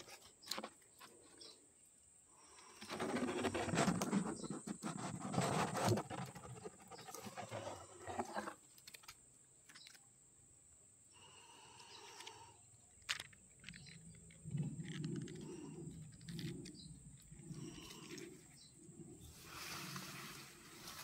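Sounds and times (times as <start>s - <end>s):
bush leaves rustling and crackling: 19.3s - 21.0s.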